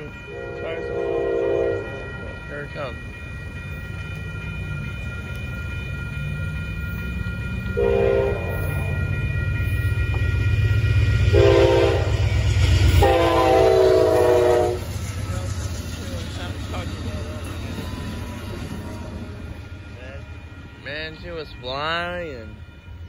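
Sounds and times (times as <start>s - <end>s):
locomotive engine rumble: 0.0s - 23.0s
railroad crossing bell ringing: 0.0s - 23.0s
train horn blasts: 0.3s - 2.1s, 7.8s - 8.8s, 11.2s - 15.0s.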